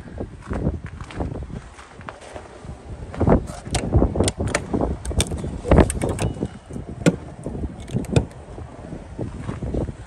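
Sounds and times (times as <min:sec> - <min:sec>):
footsteps crunching on snow: 0:00.4 - 0:03.7.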